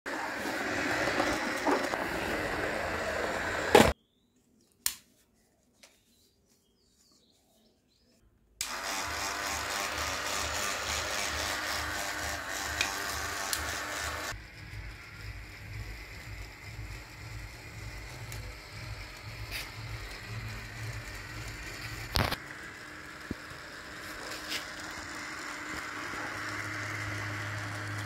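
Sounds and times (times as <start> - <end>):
toy motor whirring: 8.6 - 28.0.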